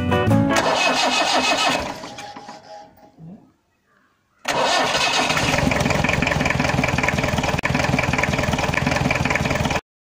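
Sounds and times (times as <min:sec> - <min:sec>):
diesel engine idling: 0:04.5 - 0:09.8.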